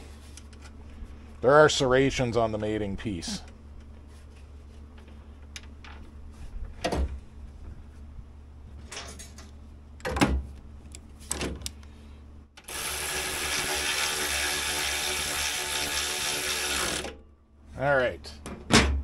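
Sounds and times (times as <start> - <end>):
power drill running: 12.6 - 17.2.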